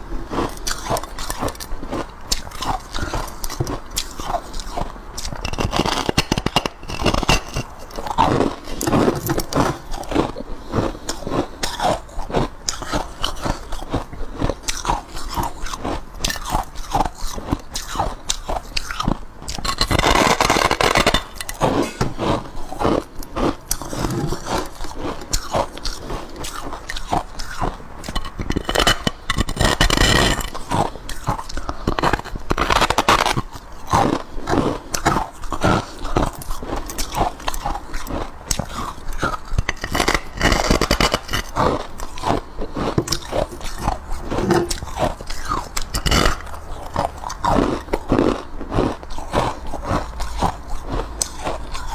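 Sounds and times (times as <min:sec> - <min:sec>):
crunching ice while chewing: 0:00.0 - 0:51.9.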